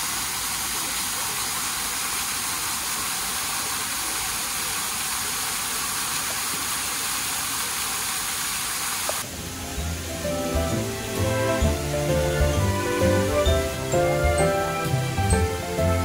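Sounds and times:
rushing water hiss: 0:00.0 - 0:16.0
background music: 0:09.3 - 0:16.0.

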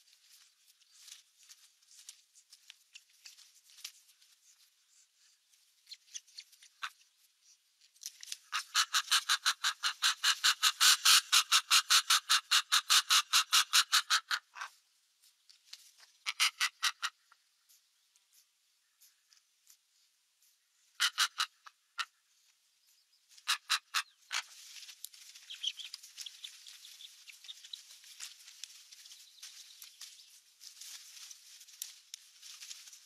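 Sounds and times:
bird chicks alarm chirps: 0:25.2 - 0:30.3.

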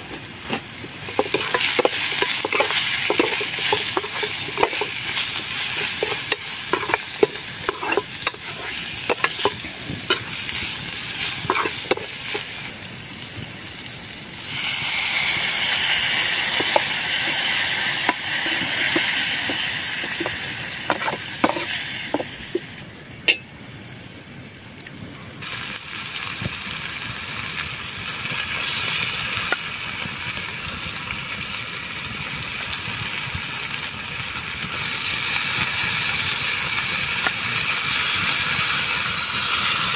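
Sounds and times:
metal spoon scraping a pan: 0:00.0 - 0:12.6, 0:16.2 - 0:22.7
food sizzling in a pan: 0:00.0 - 0:22.8, 0:25.4 - 0:39.9.

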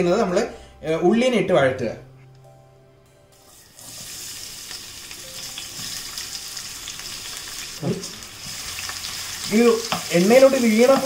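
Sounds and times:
onions sizzling in hot oil: 0:03.4 - 0:11.0.

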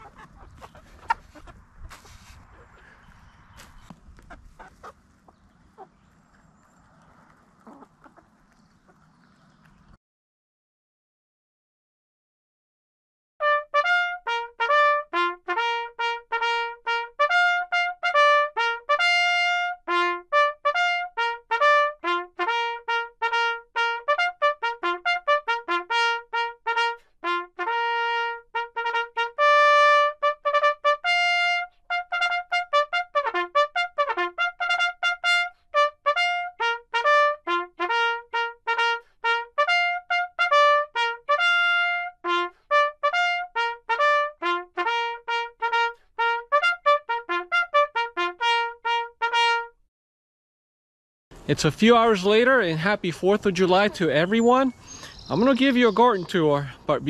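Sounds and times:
solo trumpet playing quick melody: 0:13.4 - 0:49.8.

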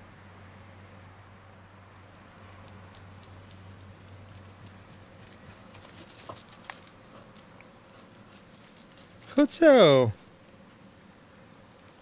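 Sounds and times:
dog running clicks and jingles: 0:02.0 - 0:09.5.

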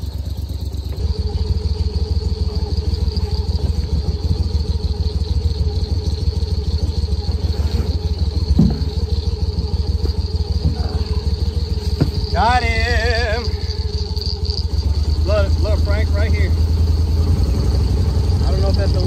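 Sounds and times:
boat mud motor running: 0:00.0 - 0:19.0
brief knock: 0:08.6 - 0:08.9.

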